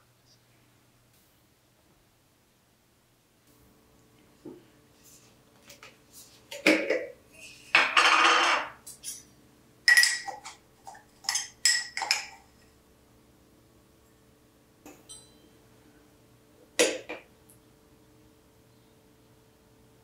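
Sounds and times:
glass jars clinking on wood: 9.9 - 12.5.

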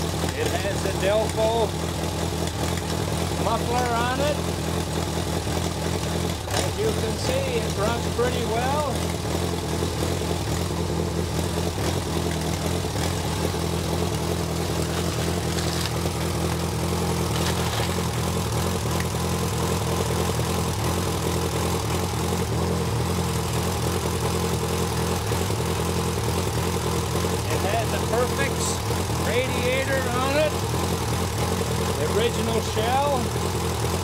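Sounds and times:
engine idling: 0.0 - 34.0
man talking: 0.4 - 1.8, 3.4 - 4.5, 6.6 - 9.0, 27.5 - 30.6, 32.0 - 33.3.

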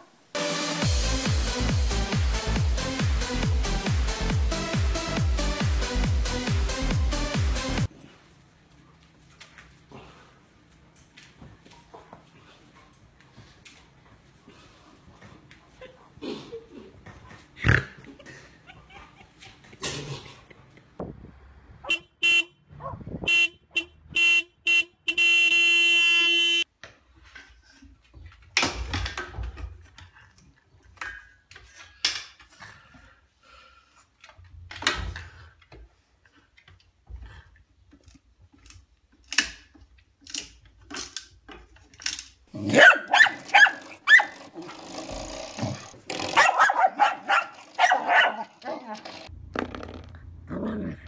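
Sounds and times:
vehicle horn honking: 21.8 - 22.6, 23.2 - 26.6
dog barking: 22.8 - 23.0, 42.6 - 44.4, 46.4 - 48.5.

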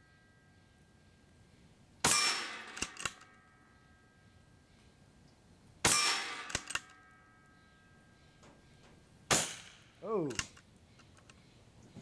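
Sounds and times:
air rifle shots: 2.0 - 3.4, 5.8 - 7.0, 9.3 - 10.6.

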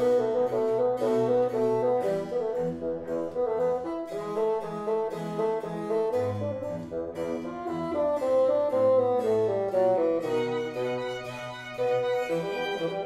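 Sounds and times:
brass ensemble playing chords: 7.5 - 13.0.

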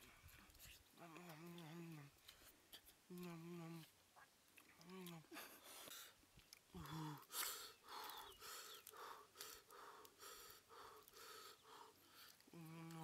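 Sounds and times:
man breathing quickly: 6.8 - 12.5.

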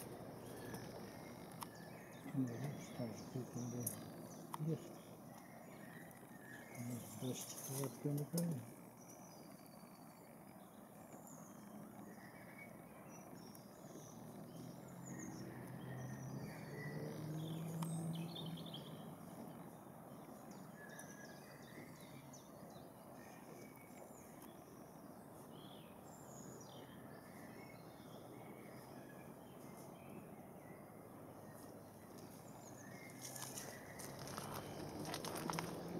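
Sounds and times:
low droning hum: 0.0 - 17.0
small birds chirping and trilling: 0.0 - 35.9.

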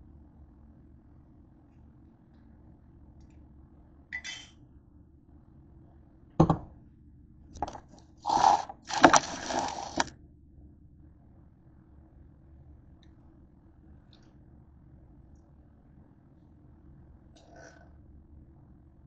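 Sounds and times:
metal can scraping and rustling: 7.6 - 10.1.

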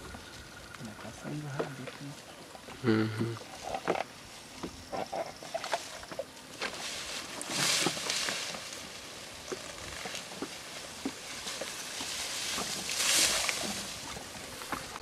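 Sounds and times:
paddle swishing water: 3.4 - 15.0.

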